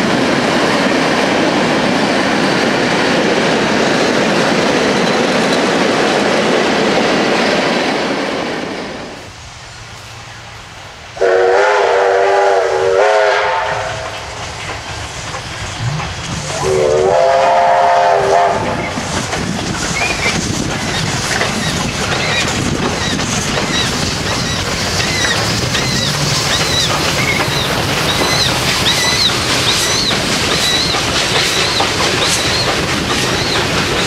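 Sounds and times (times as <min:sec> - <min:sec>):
steam train exhaust: 0:00.0 - 0:34.0
train wheels rolling: 0:00.0 - 0:34.0
steam locomotive whistle: 0:11.2 - 0:14.4, 0:16.5 - 0:18.9.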